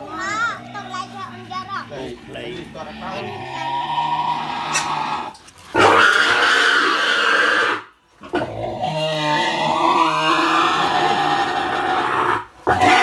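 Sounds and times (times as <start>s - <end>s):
boar squealing loudly: 3.0s - 13.0s.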